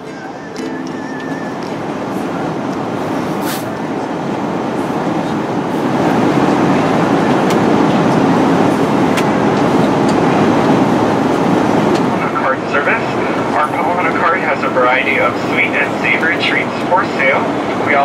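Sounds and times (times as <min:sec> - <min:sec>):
airplane cabin engine noise: 0:00.0 - 0:18.0.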